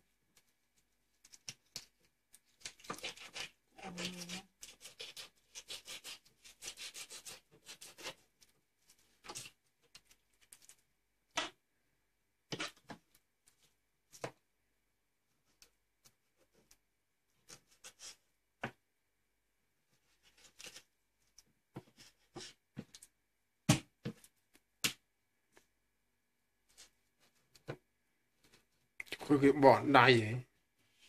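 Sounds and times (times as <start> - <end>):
knife scraping fish: 2.6 - 8.2, 12.5 - 12.8, 17.4 - 18.2, 20.0 - 20.9.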